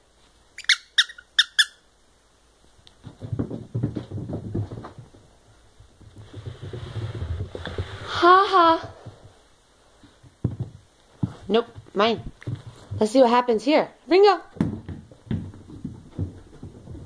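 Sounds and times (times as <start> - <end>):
squeaky toy squeaks: 0.6 - 1.8
dog paws pattering on carpet: 2.8 - 8.2, 8.8 - 13.6, 14.4 - 17.0.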